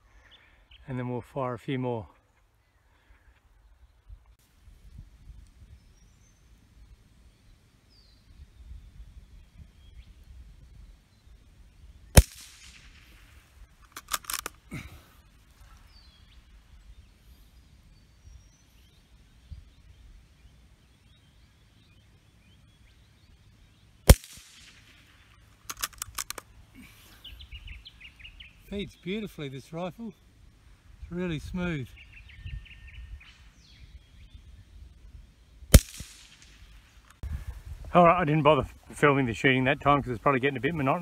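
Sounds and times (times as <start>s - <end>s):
rifle shots: 12.2s - 14.6s, 24.0s - 26.4s, 35.7s - 37.0s
rifle bolt metallic clicks: 13.8s - 14.6s, 25.6s - 26.5s.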